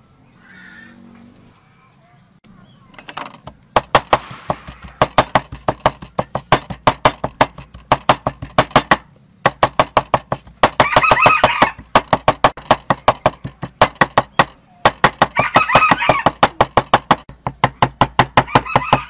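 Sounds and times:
bird calling: 0.0 - 5.4, 9.1 - 11.9, 12.8 - 19.0
knife chopping on wooden block: 3.1 - 19.0.

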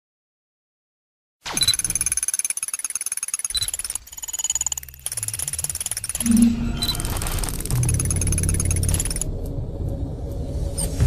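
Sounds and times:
high steady electronic tones: 2.8 - 9.4
electronic beeps and blips: 3.4 - 9.3
low hum: 4.8 - 11.0.

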